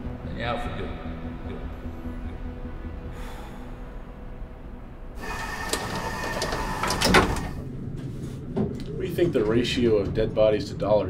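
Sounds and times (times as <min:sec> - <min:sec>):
elevator humming: 0:01.7 - 0:08.4
sliding doors whirring and rattling: 0:05.2 - 0:07.7.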